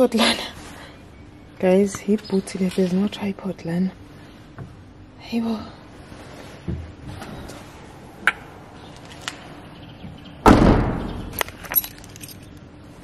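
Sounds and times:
car boot lid slamming: 10.4s - 11.2s.

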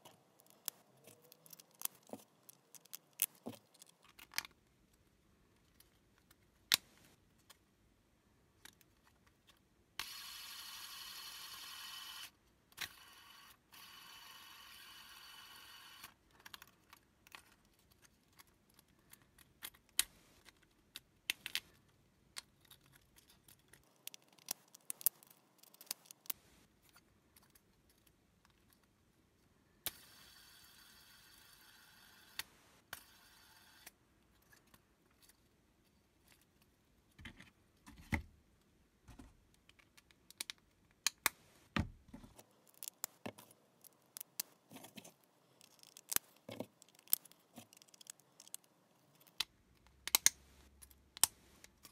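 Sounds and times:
plastic tiles clicking and snapping: 0.0s - 5.0s, 16.2s - 29.0s, 39.6s - 41.4s, 42.4s - 51.9s
fidget spinner whirring: 10.0s - 12.3s.

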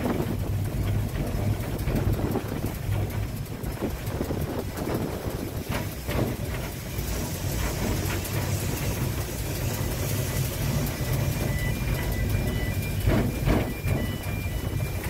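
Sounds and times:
steam locomotive rumble: 0.0s - 15.0s
sharp knocks: 13.0s - 14.4s.

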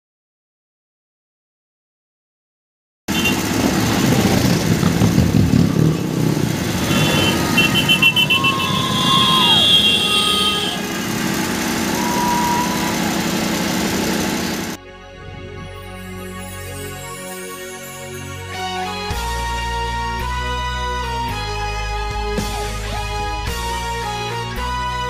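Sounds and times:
motorcycles and cars driving past: 3.1s - 14.8s.

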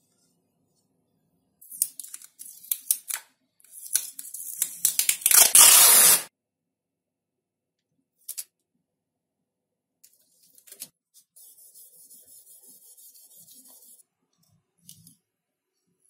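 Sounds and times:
packing tape crackling and clicking: 3.8s - 6.2s
tape ripping off roll: 5.2s - 6.3s.

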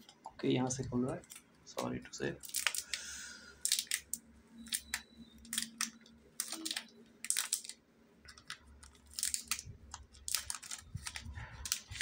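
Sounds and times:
faint steady hum: 0.0s - 12.0s
plastic wrapper crinkling: 5.4s - 12.0s.

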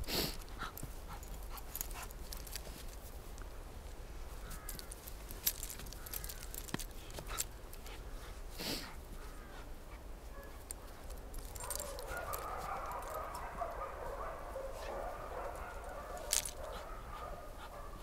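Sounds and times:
breathy puff: 0.0s - 0.4s, 8.5s - 9.0s
jumbled dog sounds: 5.5s - 18.0s.

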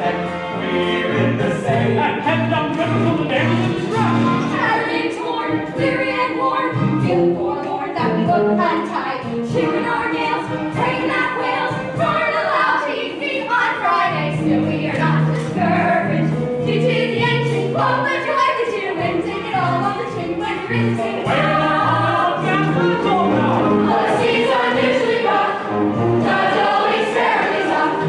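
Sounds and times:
bass line: 0.0s - 4.8s, 19.0s - 25.0s, 25.6s - 26.5s
chorus singing show tune: 0.0s - 28.0s
instrumental accompaniment: 0.0s - 28.0s.

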